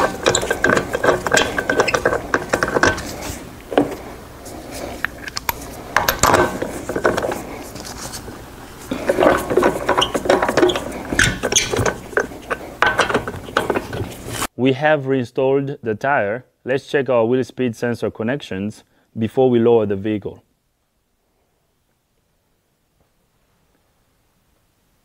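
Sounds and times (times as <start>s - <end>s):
metal clanks: 0.0s - 4.0s, 5.1s - 7.5s, 8.9s - 14.3s.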